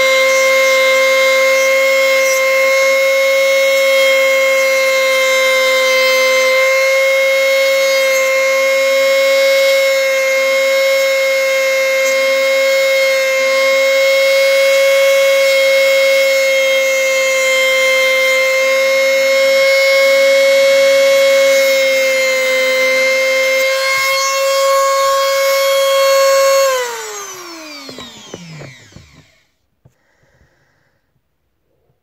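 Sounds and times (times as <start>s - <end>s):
hair trimmer motor humming: 25.3s - 29.4s.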